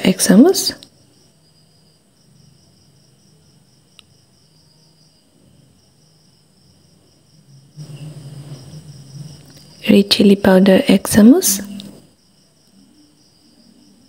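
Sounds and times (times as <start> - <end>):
low rustling noise: 7.8 - 10.3.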